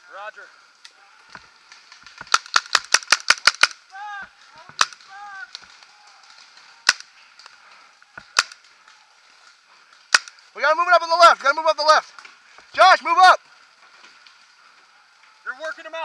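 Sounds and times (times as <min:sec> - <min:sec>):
paintball markers firing: 0:01.9 - 0:03.8, 0:04.6 - 0:05.7, 0:06.8 - 0:07.5, 0:08.1 - 0:08.7, 0:10.1 - 0:10.4.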